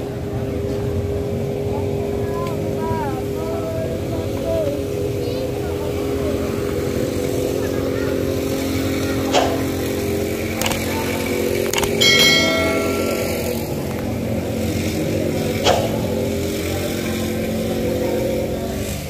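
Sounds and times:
motorcycle engines: 0.0s - 19.0s
street traffic hum: 0.0s - 19.0s
sharp click: 10.6s - 10.9s, 11.6s - 12.0s
bright metallic ring: 11.9s - 14.4s.

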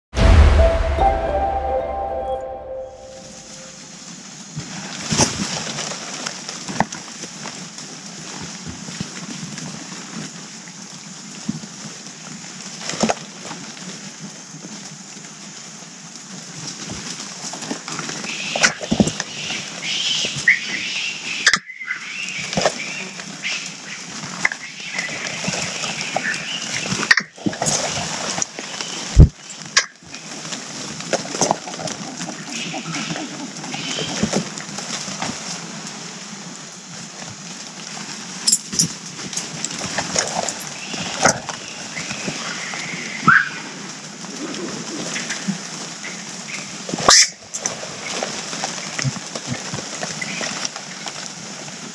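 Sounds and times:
steady high hiss: 0.2s - 5.1s
monkeys chirping: 31.6s - 34.2s.

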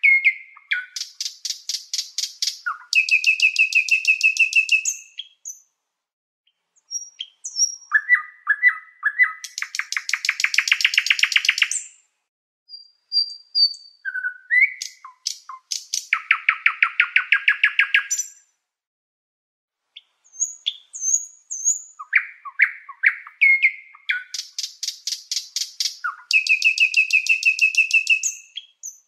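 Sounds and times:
nightingale singing: 0.0s - 5.7s, 6.5s - 12.1s, 12.7s - 18.5s, 20.0s - 29.0s.

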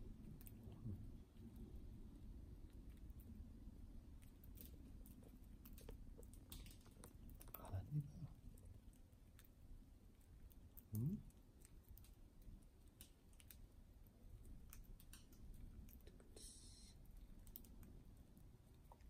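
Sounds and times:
person making low voice sound: 10.9s - 11.3s.

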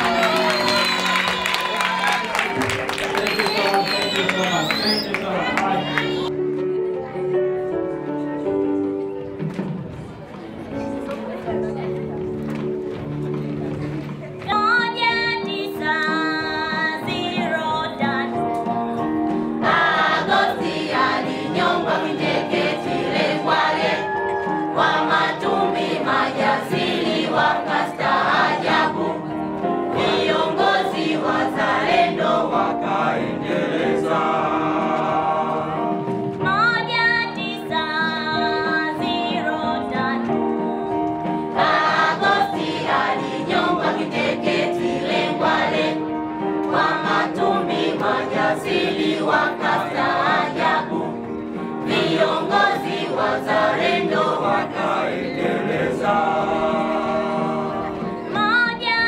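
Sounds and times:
choir singing: 19.5s - 36.9s, 41.4s - 59.0s.

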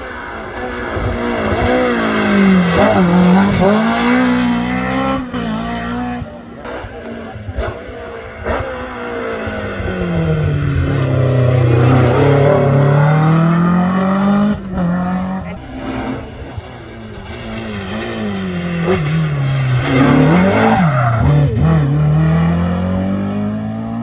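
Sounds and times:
rally car engine revving: 0.0s - 24.0s.

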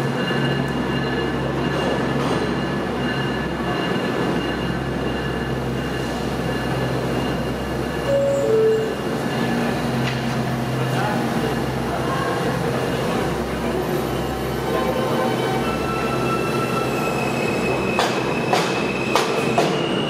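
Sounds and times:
subway trains humming: 0.0s - 20.0s
two-note door chime: 8.1s - 9.1s.

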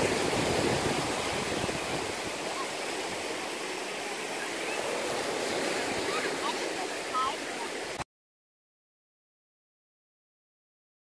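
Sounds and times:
waves washing on a beach: 0.0s - 8.0s.

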